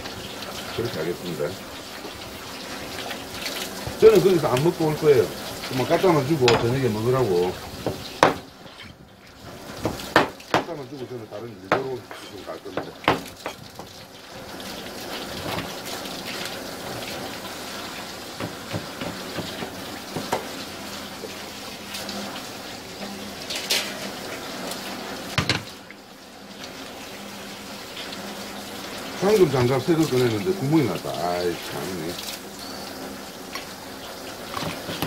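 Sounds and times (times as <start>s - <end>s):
tap water running and splashing: 0.0s - 35.0s
knocks on cutting board: 6.5s - 6.7s, 7.8s - 8.4s, 9.8s - 10.7s, 11.7s - 13.6s, 18.4s - 20.5s, 25.4s - 25.7s.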